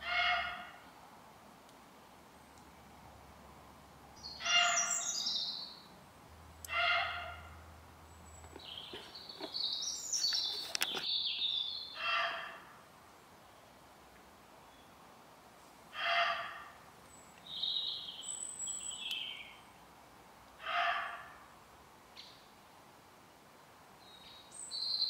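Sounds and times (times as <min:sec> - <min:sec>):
harsh bird call: 0:04.2 - 0:05.6.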